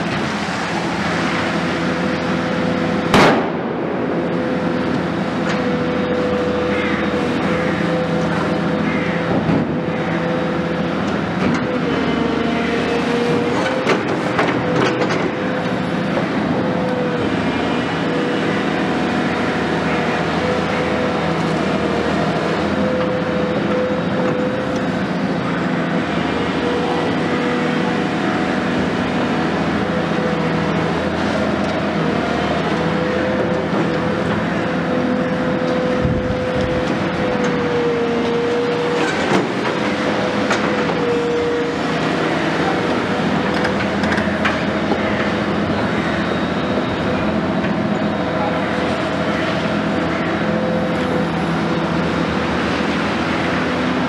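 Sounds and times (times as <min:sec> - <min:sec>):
excavator engine and hydraulics: 0:00.0 - 0:54.0.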